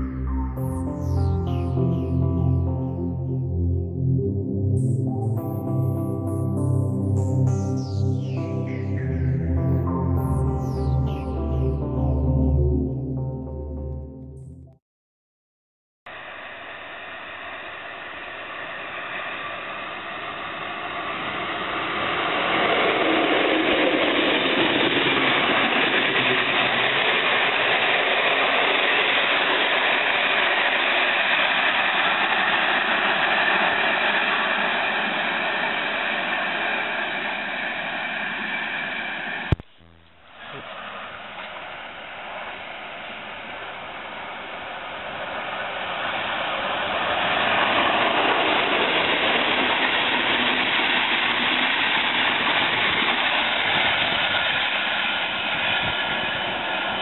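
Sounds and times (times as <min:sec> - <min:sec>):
train wheels on rails: 0:41.3 - 0:56.1.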